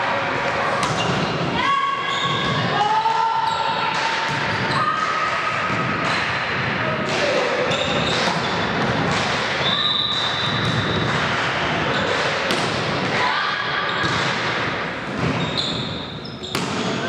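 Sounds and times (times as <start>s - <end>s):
echoing hall noise: 0.0s - 17.0s
volleyball hits and thuds: 0.8s - 1.4s, 5.7s - 13.3s, 14.0s - 17.0s
sharp ball strike: 12.2s - 13.1s.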